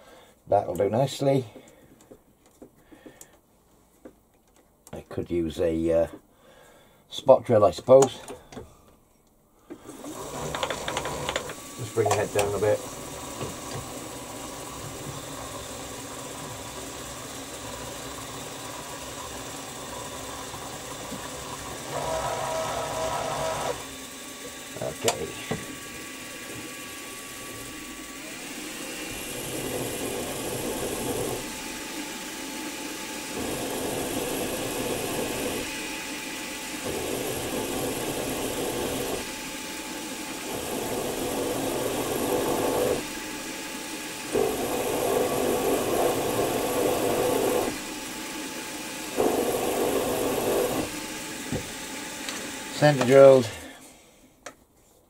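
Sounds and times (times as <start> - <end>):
milling machine hum: 9.8 - 53.7
drill cutting into metal: 9.9 - 53.6.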